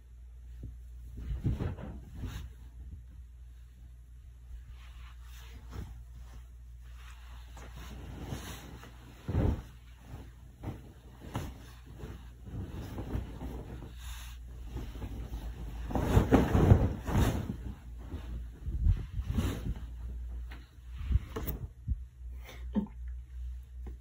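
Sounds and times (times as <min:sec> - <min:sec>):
bedding rustling: 0:00.0 - 0:22.1
pillows thumping on bed: 0:01.1 - 0:02.7, 0:07.4 - 0:20.6.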